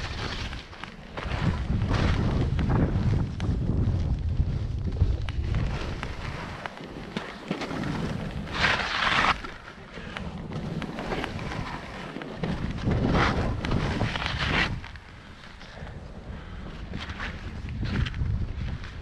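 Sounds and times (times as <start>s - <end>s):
skis scraping through snow: 0.0s - 19.0s
wind buffeting microphone: 0.0s - 19.0s.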